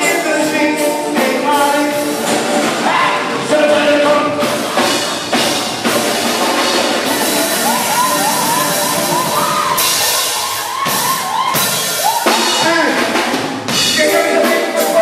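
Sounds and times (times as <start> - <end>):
band music with drum kit: 0.0 - 15.0
high wavering melody: 6.2 - 10.2.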